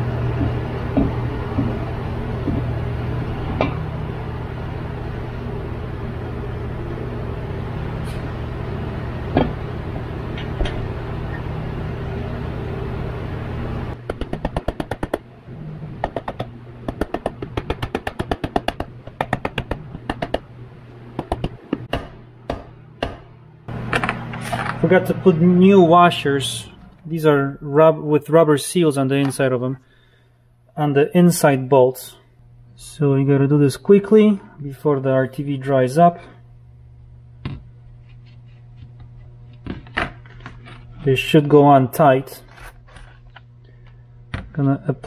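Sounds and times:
steady low hum: 0.0s - 45.0s.

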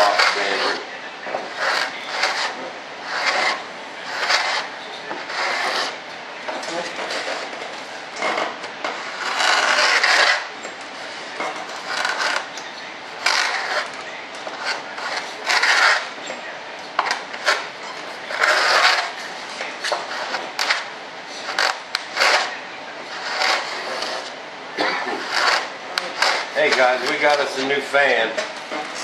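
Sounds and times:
hand tool scraping: 0.0s - 7.6s, 8.2s - 12.6s, 13.2s - 16.2s, 17.0s - 19.2s, 19.8s - 27.9s.

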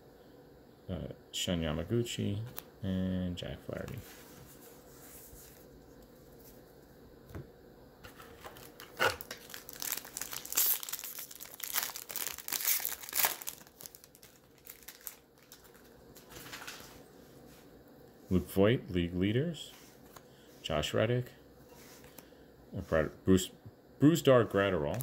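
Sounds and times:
plastic wrapper crinkling and tearing: 8.2s - 16.9s.

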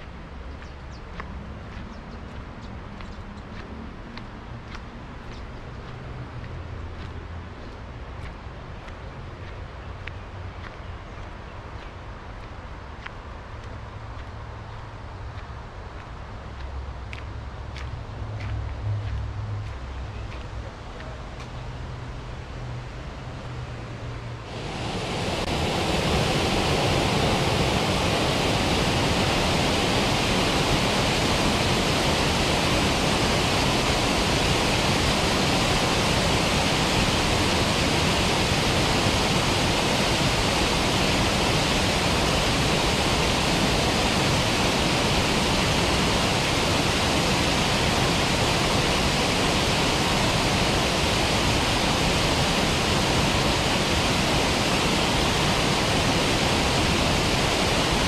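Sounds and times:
waterfall rushing into a pool: 24.4s - 58.0s.

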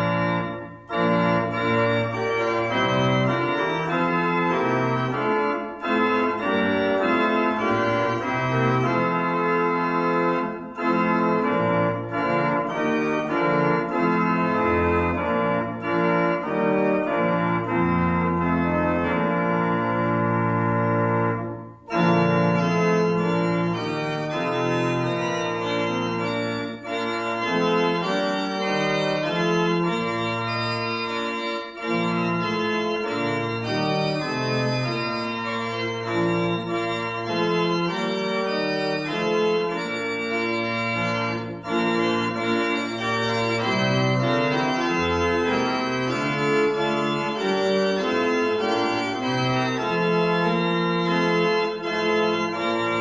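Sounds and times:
church organ playing hymn chords: 0.0s - 53.0s.

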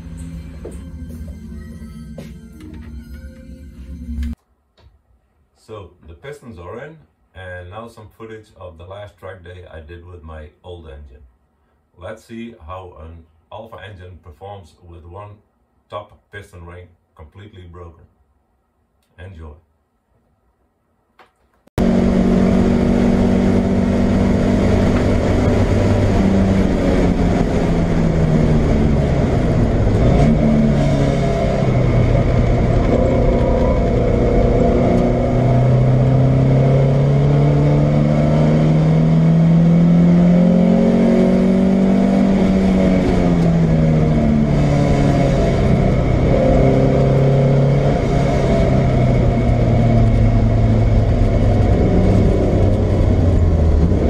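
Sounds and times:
engine rattling: 21.8s - 40.7s, 41.3s - 54.0s
race car engine revving: 21.8s - 54.0s.

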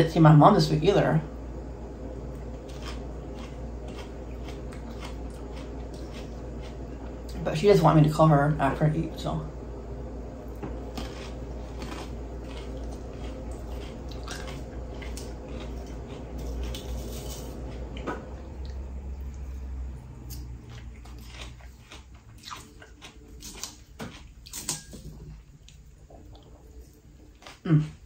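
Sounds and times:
steady low hum: 0.0s - 28.0s
chewing crisp salad: 2.2s - 7.9s, 10.5s - 28.0s.

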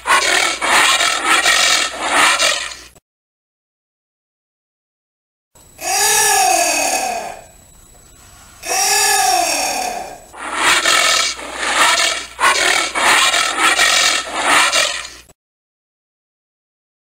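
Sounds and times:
anteater calls: 10.3s - 15.2s.

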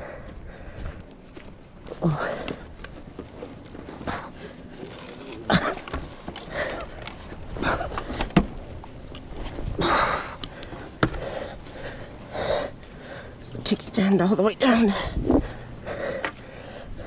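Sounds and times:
people grunting with effort: 5.4s - 8.3s.

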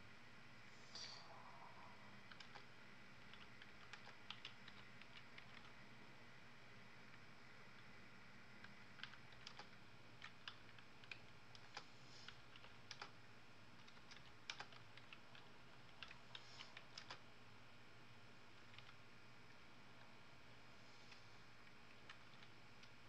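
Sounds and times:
faint room hum: 0.0s - 23.0s
keyboard typing: 2.3s - 5.8s, 8.6s - 13.2s, 13.8s - 17.2s, 18.6s - 19.0s, 21.1s - 23.0s.

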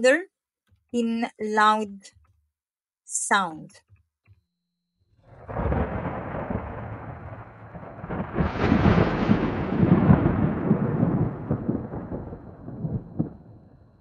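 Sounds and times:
rolling thunder rumble: 5.3s - 14.0s.

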